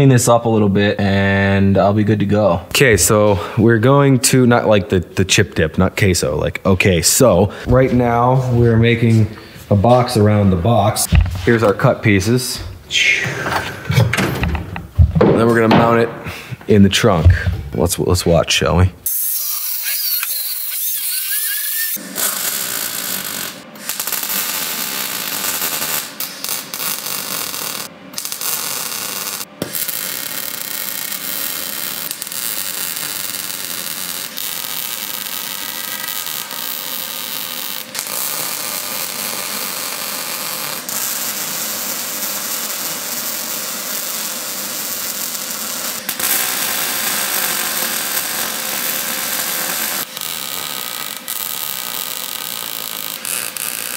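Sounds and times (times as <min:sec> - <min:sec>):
angle grinder cutting steel: 0:19.1 - 0:53.9
welder crackling hiss: 0:19.1 - 0:53.9.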